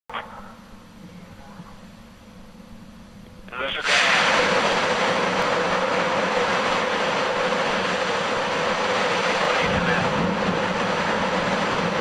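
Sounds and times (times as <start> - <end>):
rocket engines rushing: 3.5 - 12.0
deep rumble: 3.7 - 12.0.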